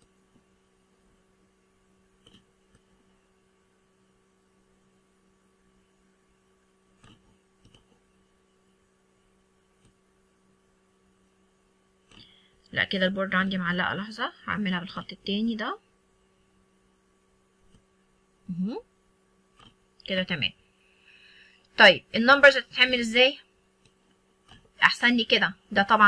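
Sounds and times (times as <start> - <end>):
faint low hum: 0.0 - 26.0
faint clicks: 2.2 - 2.9.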